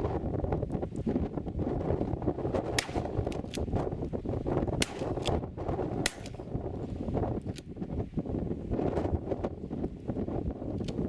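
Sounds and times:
gusting wind buffeting microphone: 0:00.0 - 0:11.0.

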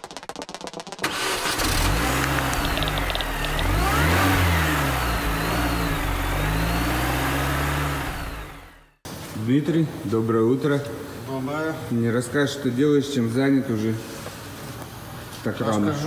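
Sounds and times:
car engine starting and revving: 0:01.0 - 0:09.0.

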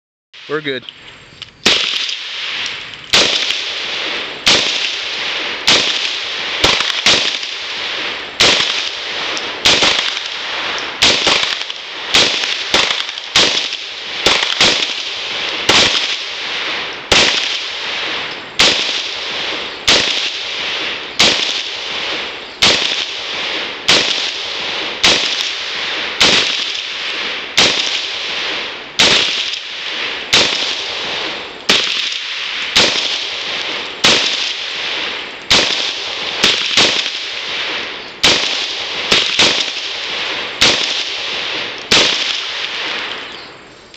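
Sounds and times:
rifle shots with echo: 0:01.6 - 0:43.4.

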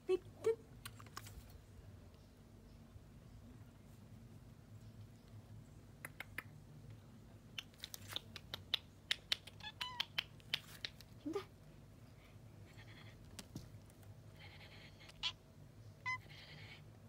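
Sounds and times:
cat chirp: 0:09.5 - 0:10.3, 0:16.0 - 0:16.8.

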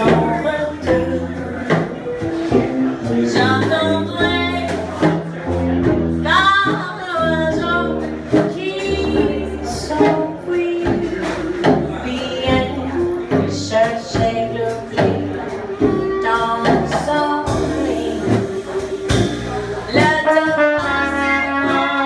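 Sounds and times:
woman singing: 0:00.0 - 0:02.2, 0:03.2 - 0:05.2, 0:06.2 - 0:19.3, 0:19.9 - 0:22.0
jazz band playing: 0:00.0 - 0:22.0
tuba bass line: 0:00.0 - 0:22.0
clarinet: 0:15.5 - 0:22.0.

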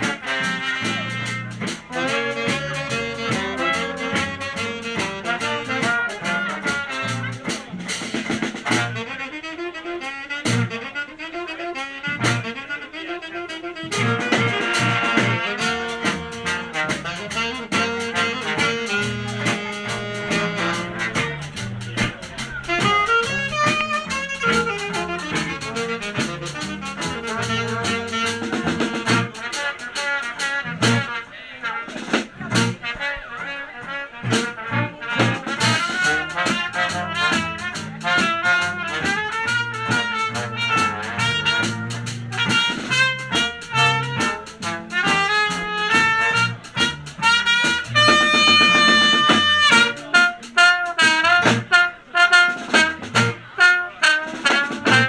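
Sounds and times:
horns holding long chord: 0:00.0 - 0:07.9, 0:08.6 - 0:29.6
swing band playing: 0:00.0 - 0:55.0.

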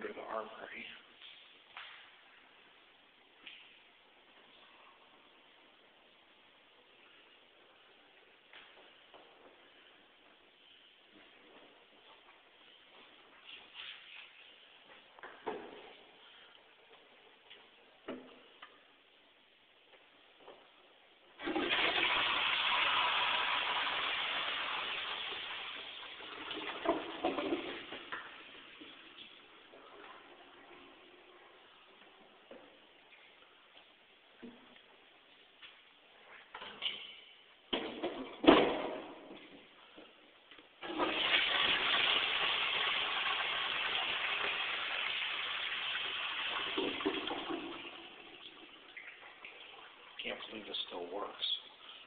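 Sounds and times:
toilet flushing: 0:21.4 - 0:29.4, 0:40.8 - 0:51.1.

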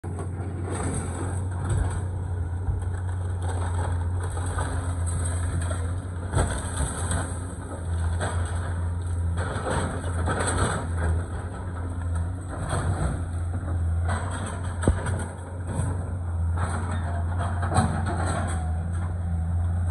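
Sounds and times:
excavator diesel engine running: 0:00.0 - 0:19.9
wood cracking and crunching: 0:00.1 - 0:15.5.

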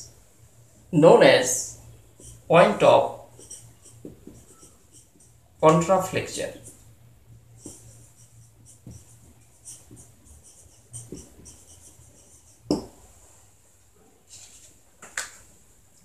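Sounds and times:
marker squeaking on whiteboard: 0:01.7 - 0:13.0
knock on whiteboard: 0:04.0 - 0:04.6, 0:12.7 - 0:13.0.

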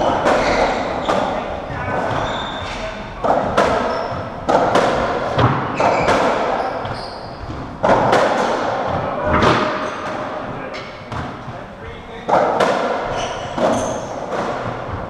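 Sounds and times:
shoe squeaks on wooden floor: 0:00.0 - 0:04.4, 0:05.6 - 0:07.8, 0:13.0 - 0:14.2
ball struck by rackets: 0:03.2 - 0:06.6, 0:07.5 - 0:08.7.

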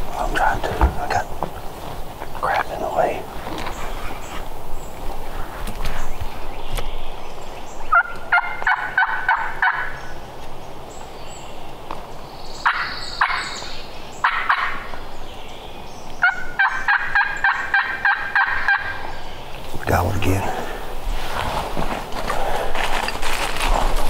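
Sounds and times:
distant turkeys gobbling: 0:07.9 - 0:10.0, 0:14.2 - 0:15.0, 0:16.2 - 0:19.2.

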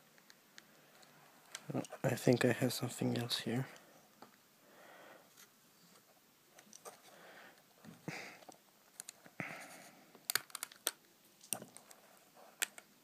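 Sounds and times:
sharp plastic clicks: 0:10.3 - 0:12.0.

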